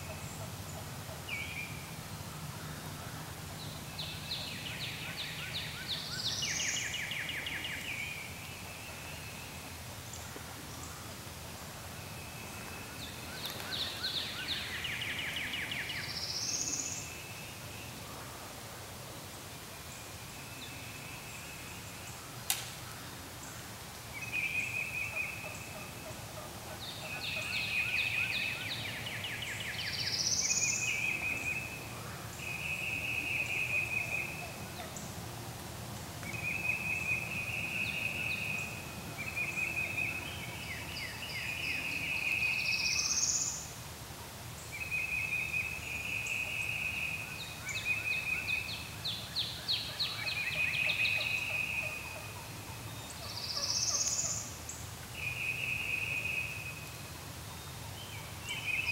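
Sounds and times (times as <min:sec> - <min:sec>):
sharp click: 0:22.5 - 0:22.8.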